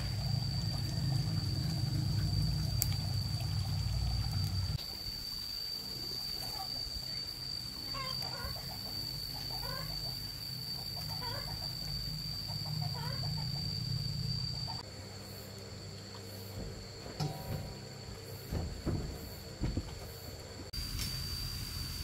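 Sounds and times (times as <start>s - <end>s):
low hum: 0.0s - 4.8s
chickens calling: 7.9s - 13.9s.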